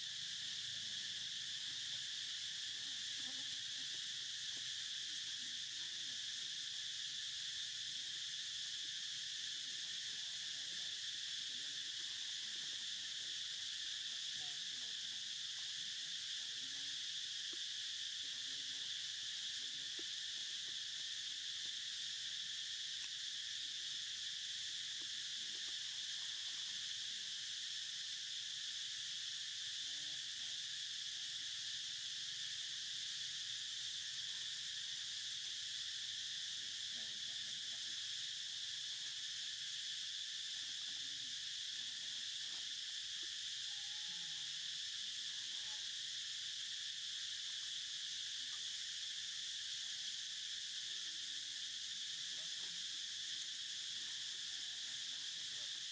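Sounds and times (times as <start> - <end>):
insects droning: 0.0 - 55.9.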